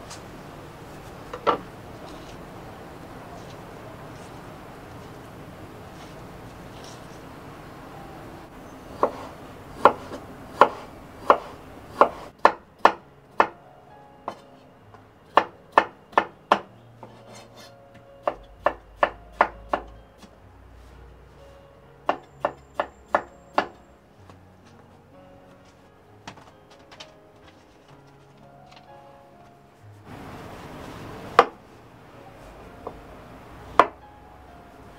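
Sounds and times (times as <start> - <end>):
knife chopping on wooden board: 9.0 - 13.5.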